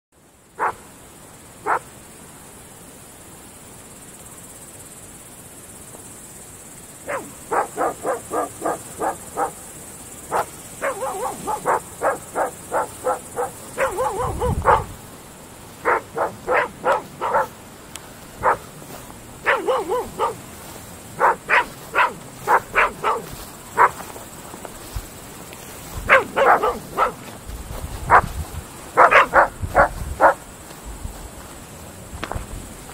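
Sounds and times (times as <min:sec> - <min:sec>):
dogs barking: 0:00.6 - 0:00.8, 0:01.6 - 0:01.9, 0:07.0 - 0:15.0, 0:15.8 - 0:17.6, 0:18.4 - 0:24.2, 0:26.0 - 0:27.3, 0:28.1 - 0:30.4.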